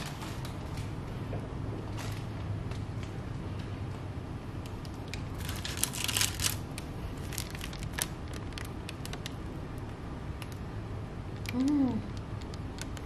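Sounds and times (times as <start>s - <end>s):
parchment paper crinkling: 4.9s - 10.6s.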